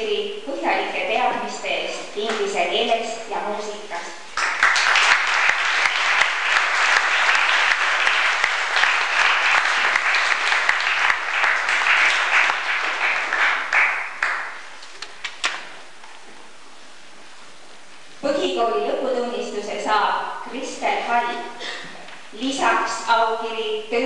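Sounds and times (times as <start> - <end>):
audience applauding: 4.4 - 14.7.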